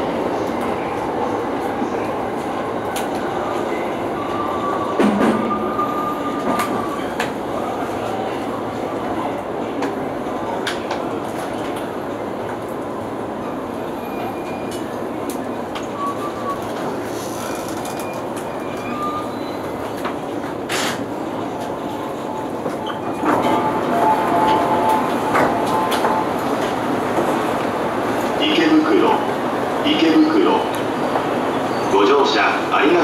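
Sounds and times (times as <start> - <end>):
electric train rolling on track: 0.0 - 33.0.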